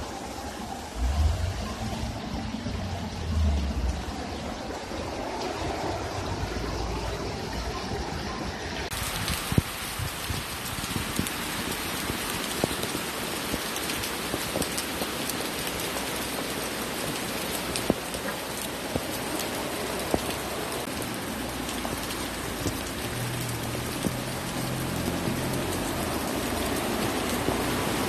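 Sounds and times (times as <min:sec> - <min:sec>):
heavy rain pouring: 0:00.0 - 0:28.0
car driving through water: 0:11.4 - 0:28.0.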